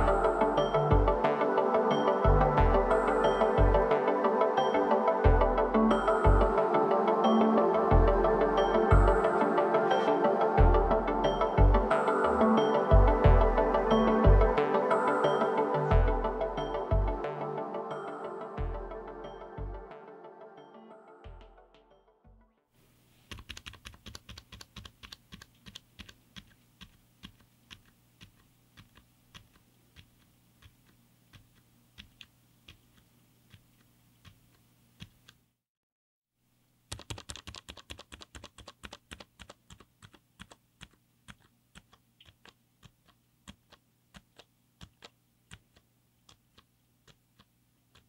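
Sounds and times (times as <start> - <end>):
mechanical keyboard keystrokes: 23.3 - 35.4, 36.9 - 48.0.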